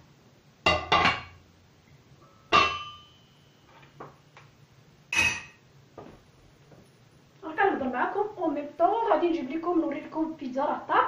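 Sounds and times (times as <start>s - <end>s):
metal pots and lid clanking: 0.7s - 1.4s, 2.4s - 3.8s, 5.1s - 5.6s.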